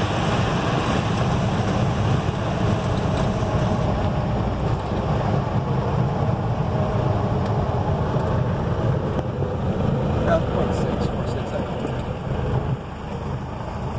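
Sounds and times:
airplane engine idling: 0.0 - 13.9.

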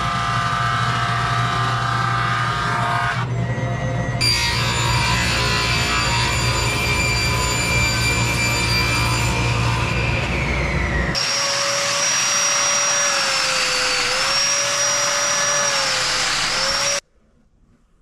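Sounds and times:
power joiner motor whine: 0.0 - 3.3, 4.4 - 17.0.

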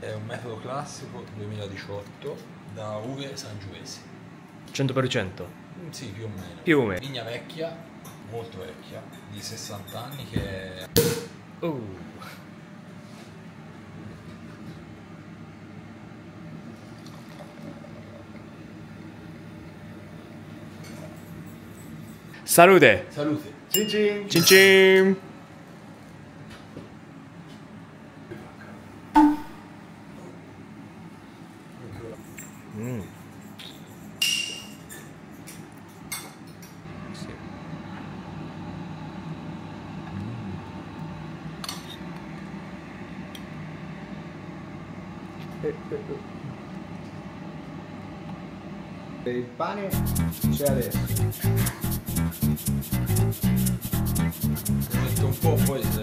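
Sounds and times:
low machine hum: 36.9 - 49.2.

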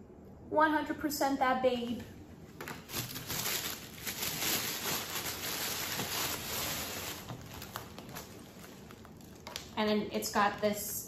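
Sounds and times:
bag packaging rustling and crinkling: 2.6 - 9.8.

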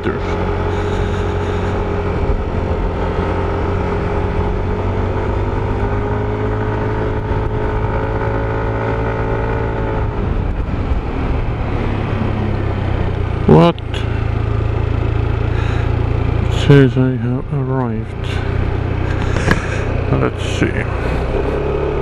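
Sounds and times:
motorcycle engine running: 0.0 - 22.0
road noise: 0.0 - 22.0.

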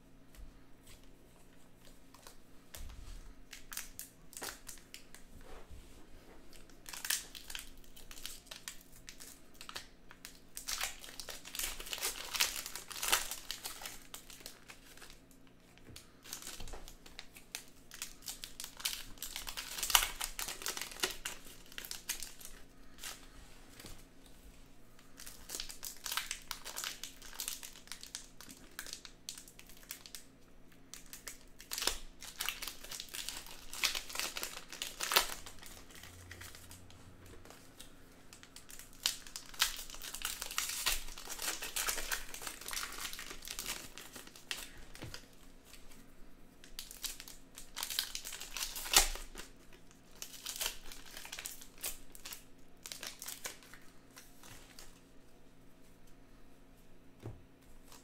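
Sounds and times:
card pack wrappers crinkling and tearing: 1.8 - 5.3, 6.5 - 24.0, 25.0 - 55.1.

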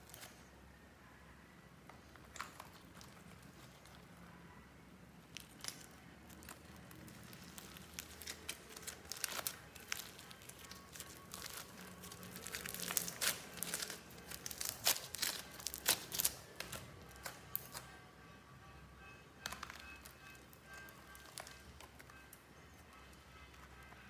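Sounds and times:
slime and clay squeezed by hand: 5.2 - 17.8.

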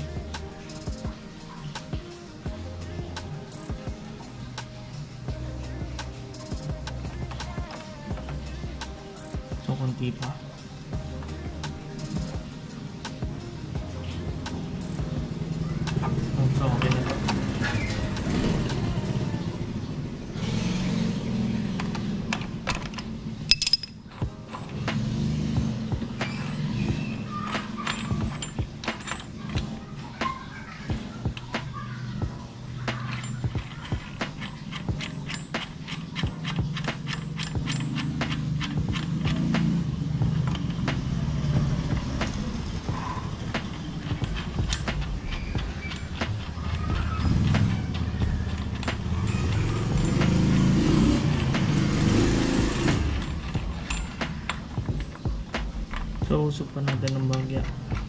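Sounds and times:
metal tools clinking: 14.0 - 18.2, 21.6 - 58.0.

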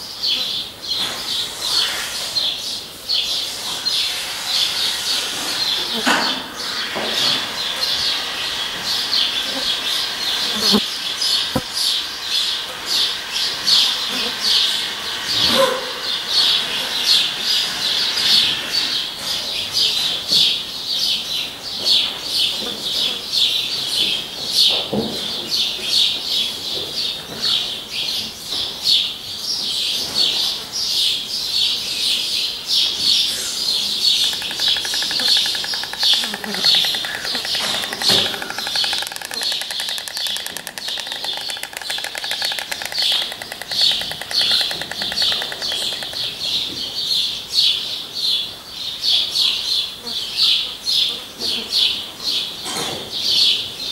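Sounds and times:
high bird chirps: 33.2 - 46.7
stork bill clattering: 34.0 - 46.5.

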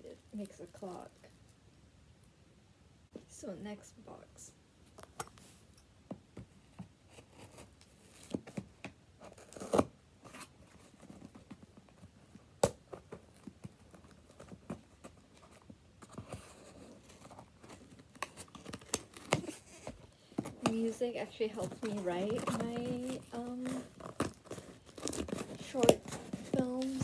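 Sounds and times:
rustling: 6.5 - 27.0
packing tape and cardboard tearing: 7.1 - 11.6, 12.6 - 27.0.

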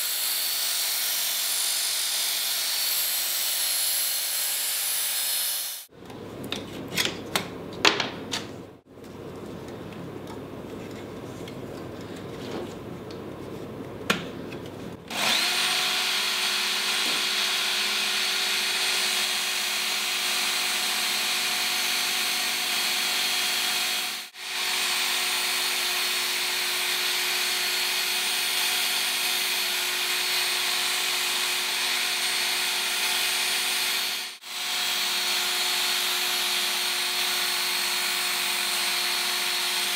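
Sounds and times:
belt sharpener whining: 15.1 - 39.9.

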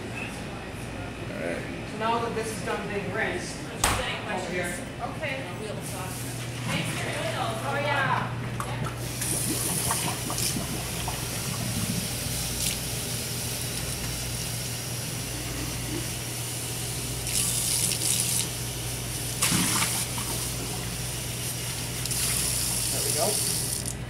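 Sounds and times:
tap water running into a sink: 8.6 - 12.9, 17.2 - 18.6, 19.4 - 21.0, 21.6 - 24.0.

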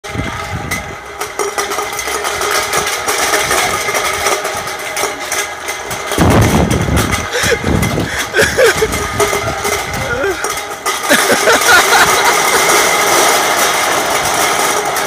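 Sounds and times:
cans clattering on asphalt: 0.0 - 15.0
forklift moving: 0.0 - 15.0
deep rumble: 6.0 - 10.3.

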